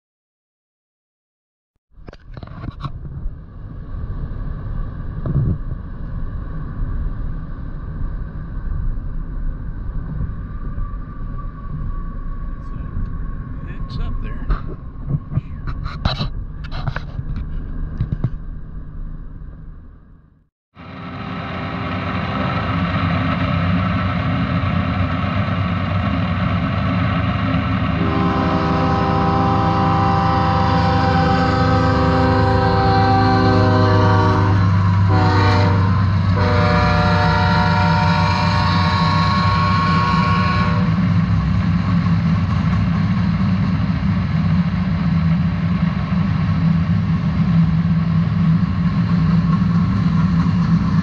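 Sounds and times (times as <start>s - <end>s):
vehicle road noise rumble: 2.0s - 30.3s, 40.9s - 51.0s
train air horn blast: 28.0s - 41.0s.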